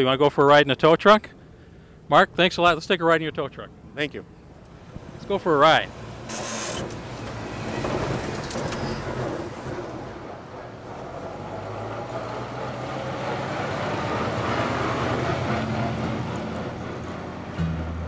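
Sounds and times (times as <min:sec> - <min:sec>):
tow truck engine driving past: 0:04.6 - 0:18.0
car passing: 0:04.7 - 0:18.0.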